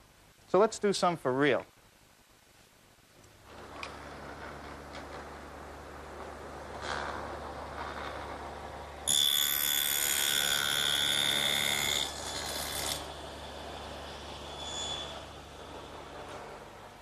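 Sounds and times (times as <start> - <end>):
table saw cutting wood whine: 9.1 - 13.2.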